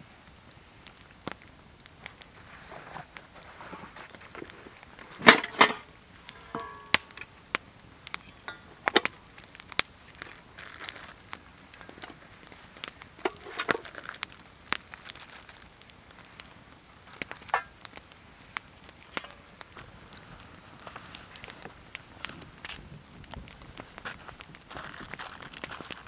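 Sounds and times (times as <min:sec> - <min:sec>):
plastic wrapping crinkling: 0:08.2 - 0:26.0.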